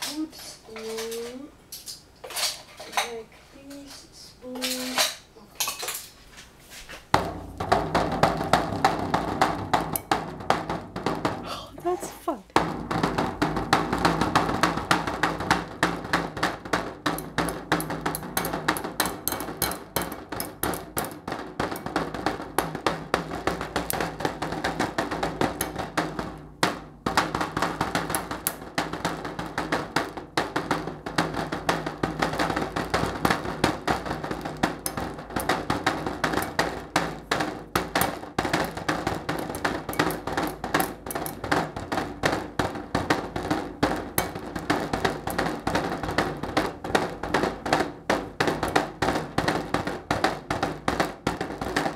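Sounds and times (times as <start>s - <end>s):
plastic spoons tapping: 7.2s - 11.6s, 12.6s - 51.9s.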